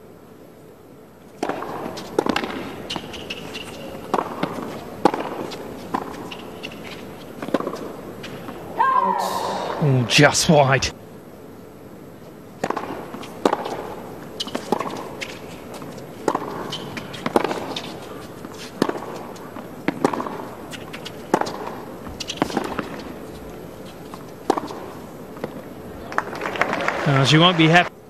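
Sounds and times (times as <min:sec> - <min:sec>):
low background noise: 0:00.0 - 0:28.0
tennis racket hitting ball: 0:01.4 - 0:09.9, 0:12.6 - 0:25.7.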